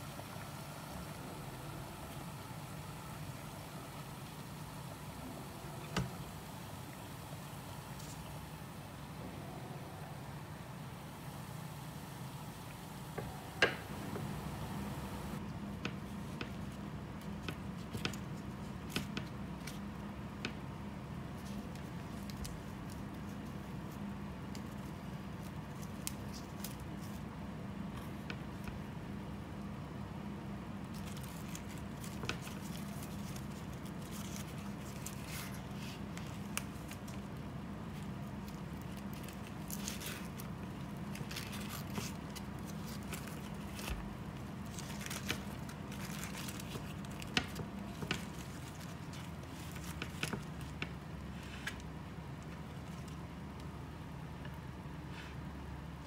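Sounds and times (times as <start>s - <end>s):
steady low hum: 0.0s - 56.0s
leaf wrapping rustling: 21.1s - 28.9s, 30.8s - 53.7s.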